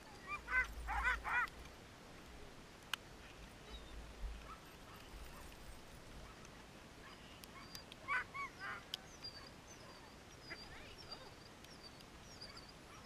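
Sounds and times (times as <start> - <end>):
dogs yelping and whining: 0.0 - 1.5, 7.0 - 13.0.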